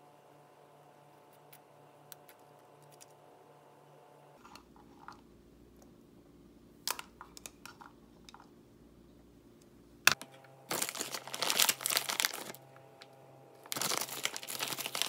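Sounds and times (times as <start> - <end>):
steady low hum: 0.0 - 15.0
small objects clicking and tapping: 6.9 - 8.5.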